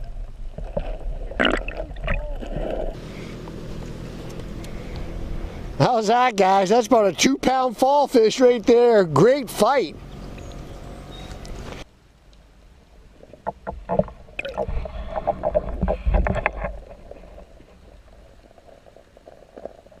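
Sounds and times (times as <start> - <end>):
river noise: 0.0 - 20.0
muffled underwater sloshing and knocks: 13.2 - 20.0.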